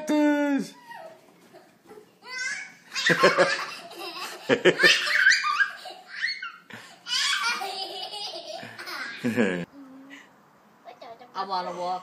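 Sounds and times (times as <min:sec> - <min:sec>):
person laughing heartily: 0:07.6 - 0:09.7.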